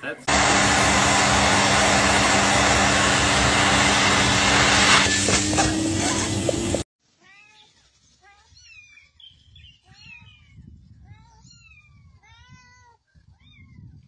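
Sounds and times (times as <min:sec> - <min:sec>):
vacuum cleaner running: 0:00.2 - 0:06.9
faint high cat meows: 0:07.2 - 0:09.2, 0:09.8 - 0:14.0.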